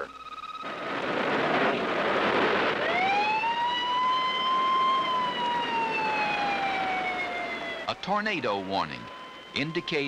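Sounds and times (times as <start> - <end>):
rushing noise: 0.0 - 7.0
warning siren wailing: 0.0 - 10.0.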